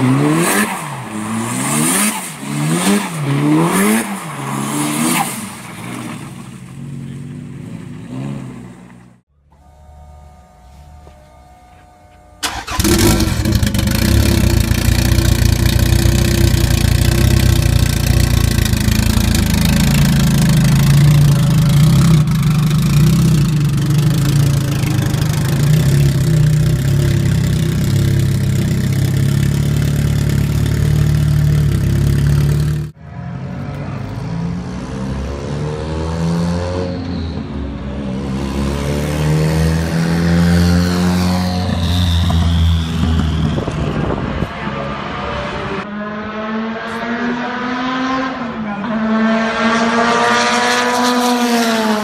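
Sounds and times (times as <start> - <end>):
car engine starting: 0.0 - 33.0
car engine running at low speed: 6.8 - 32.9
car accelerating through gears: 44.6 - 52.0.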